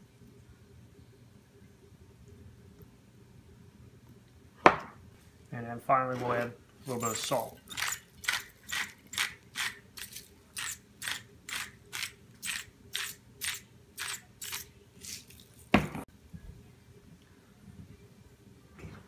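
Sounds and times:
salt grinder ratcheting crunch: 0:07.0 - 0:14.7.

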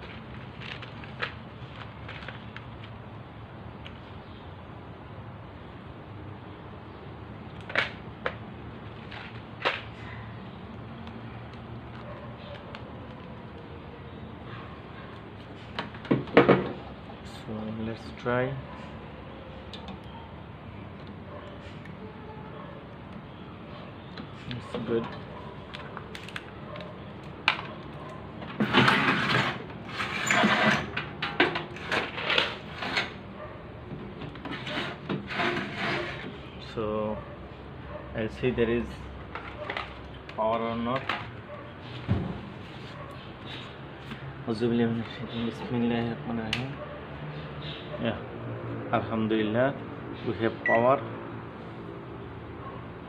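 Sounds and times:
scraping and rubbing: 0:28.5 - 0:33.3, 0:34.4 - 0:36.4.

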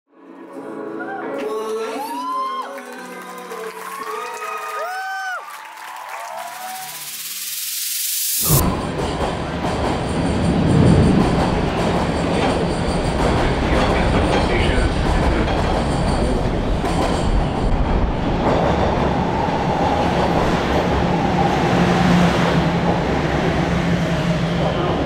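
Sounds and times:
subway train wheels rumbling: 0:08.4 - 0:25.0.

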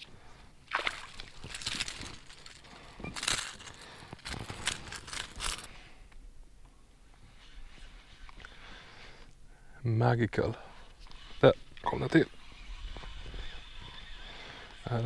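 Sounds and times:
rustling handling noise: 0:01.0 - 0:05.8.

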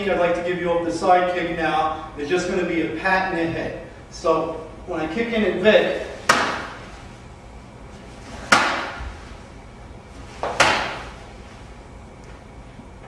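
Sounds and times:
sharp echoing impacts: 0:05.8 - 0:07.2, 0:08.2 - 0:09.5, 0:10.3 - 0:11.5.

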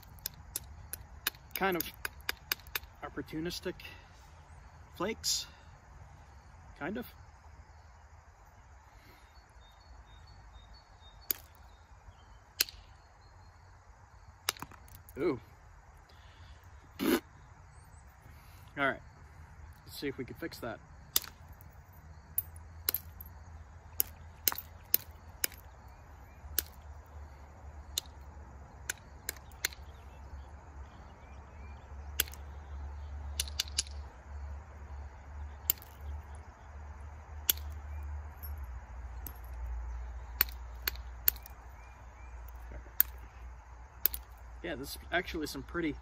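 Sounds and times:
flint knapping clicks: 0:00.0 - 0:03.0, 0:11.2 - 0:11.7, 0:12.6 - 0:12.9, 0:14.4 - 0:15.2, 0:21.1 - 0:21.7, 0:24.0 - 0:25.7, 0:26.5 - 0:26.9, 0:27.9 - 0:28.2, 0:28.8 - 0:30.0, 0:32.2 - 0:32.5, 0:33.4 - 0:34.0, 0:35.6 - 0:36.0, 0:37.4 - 0:37.8, 0:40.4 - 0:41.6, 0:42.5 - 0:43.3, 0:44.0 - 0:44.4.

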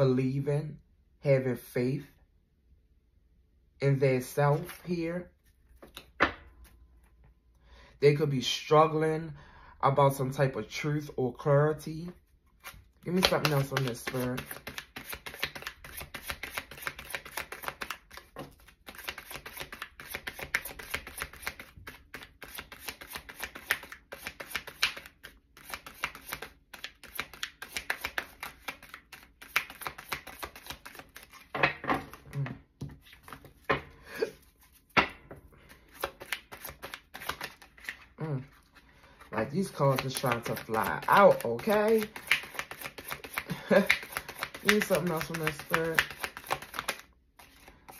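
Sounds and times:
cards being shuffled: 0:04.2 - 0:06.8, 0:12.0 - 0:35.0, 0:35.7 - 0:47.9.

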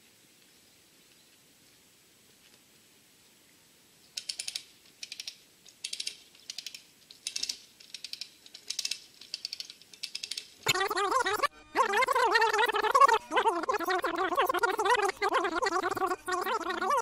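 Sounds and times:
lever puller ratchet clicking: 0:04.2 - 0:10.5.

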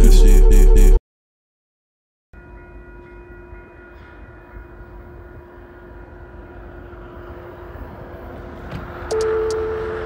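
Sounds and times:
distant train rumble: 0:02.4 - 0:10.0
faint train horn: 0:02.6 - 0:10.0.

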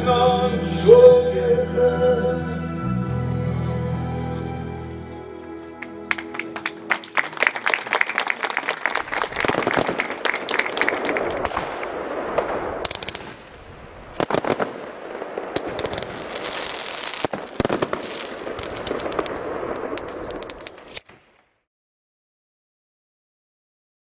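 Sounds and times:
firework bangs: 0:09.0 - 0:21.5
firework crackling and hissing: 0:09.1 - 0:21.2.

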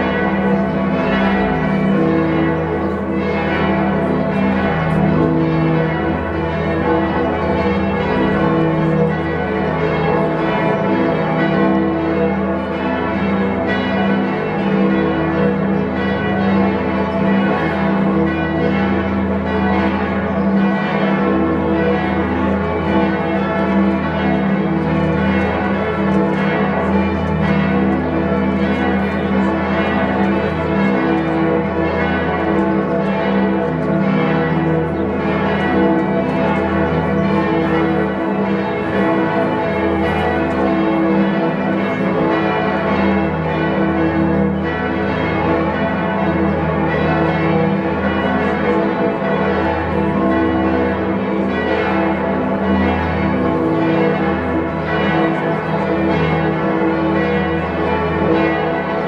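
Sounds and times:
large church bells ringing: 0:00.0 - 0:59.0.

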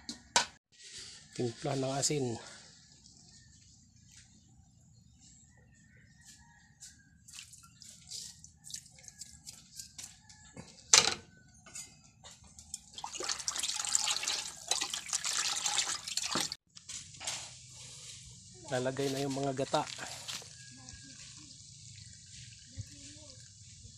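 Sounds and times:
liquid dripping and splashing: 0:07.3 - 0:09.6, 0:12.7 - 0:16.6.

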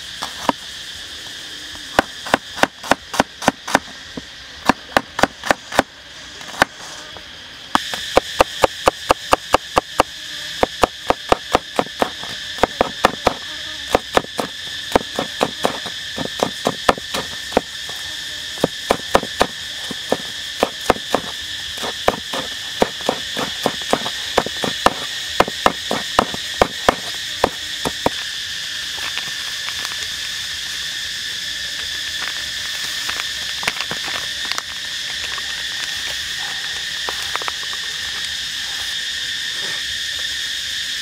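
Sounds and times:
insect trilling: 0:00.0 - 0:41.0
cleaver chopping on wooden board: 0:04.6 - 0:05.9, 0:07.8 - 0:17.7, 0:18.6 - 0:28.2.

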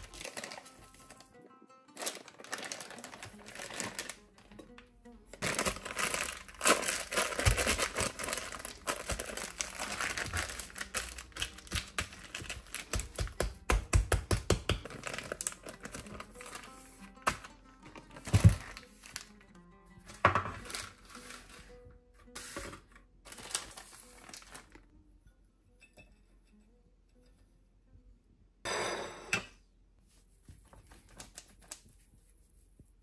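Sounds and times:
plastic bag crinkling: 0:00.0 - 0:01.3, 0:02.0 - 0:04.5, 0:05.4 - 0:13.2, 0:14.9 - 0:16.8, 0:23.3 - 0:24.9.

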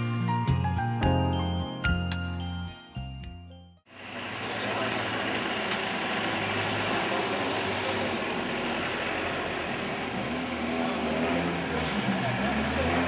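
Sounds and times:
vehicle engine running: 0:03.9 - 0:13.0.

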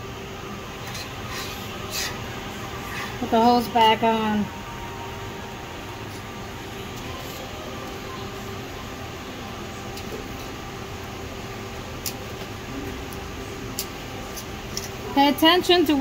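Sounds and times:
mechanical hum: 0:00.0 - 0:16.0.

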